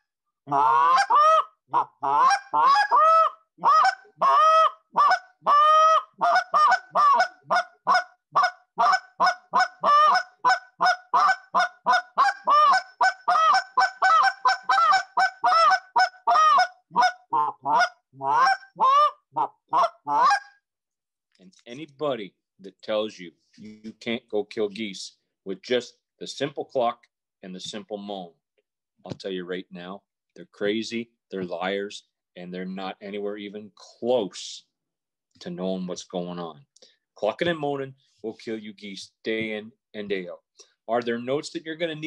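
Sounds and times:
goose call clucks and moans: 0:00.0 - 0:20.5.

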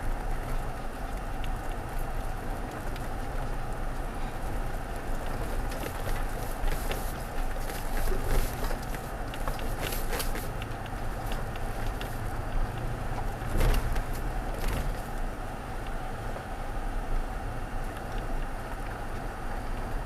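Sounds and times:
engine and tyres rumbling: 0:00.0 - 0:20.0
tyres clicking over gravel and stones: 0:04.8 - 0:15.3.

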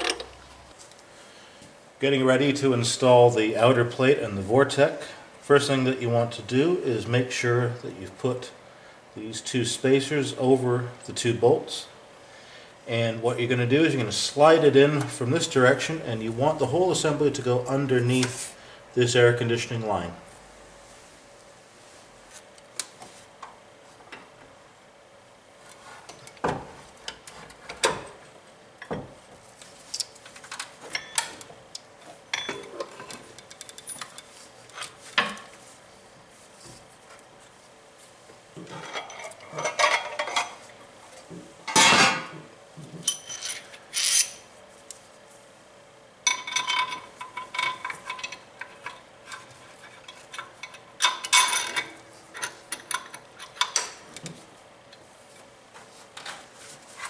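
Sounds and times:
metal tools clinking and scraping: 0:30.9 - 0:31.5, 0:32.3 - 0:35.0, 0:38.7 - 0:40.7, 0:43.0 - 0:44.5, 0:46.3 - 0:54.0.

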